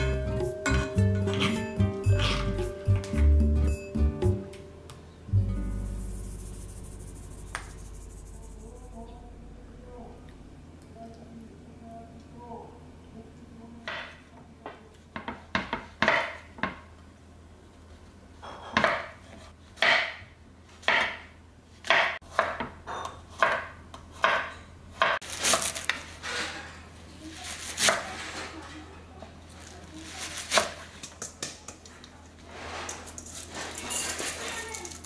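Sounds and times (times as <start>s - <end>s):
knife chopping on wooden board: 20.8s - 25.2s.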